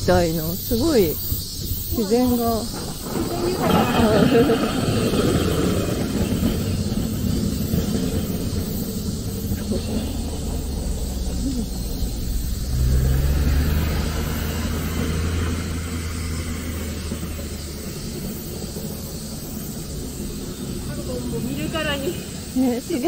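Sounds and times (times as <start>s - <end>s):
wheels rolling over pavement: 0.0s - 23.0s.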